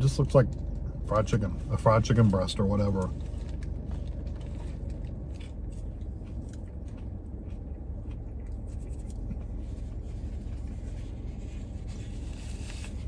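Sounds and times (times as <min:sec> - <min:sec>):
car cabin rumble: 0:00.0 - 0:13.0
chewing crunchy food: 0:03.0 - 0:11.4.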